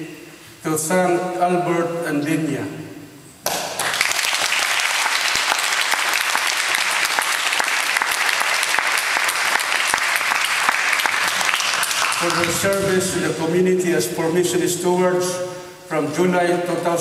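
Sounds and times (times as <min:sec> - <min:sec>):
audience applauding: 0:03.5 - 0:12.9.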